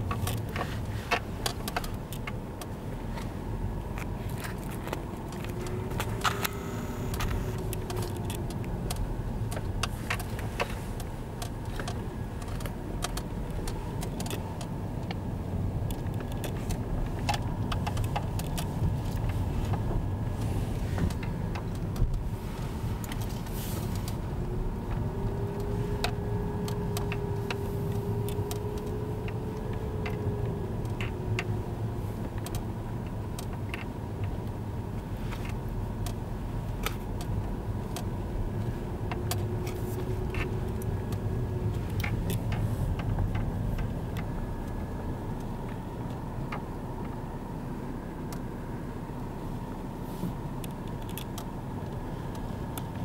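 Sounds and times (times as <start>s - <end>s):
car engine and road rumble: 0.0s - 53.0s
small clicks and ticks: 3.9s - 20.5s, 23.0s - 47.2s, 50.5s - 53.0s
faint humming tone: 5.6s - 7.6s.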